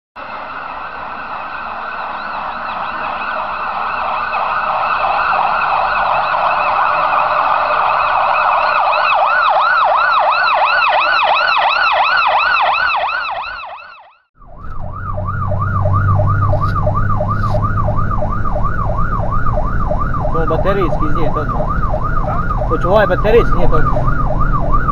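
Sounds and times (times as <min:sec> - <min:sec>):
fire engine siren yelping: 0:00.2 - 0:24.9
warbling siren effect: 0:00.2 - 0:24.9
truck engine rumble: 0:14.4 - 0:24.9.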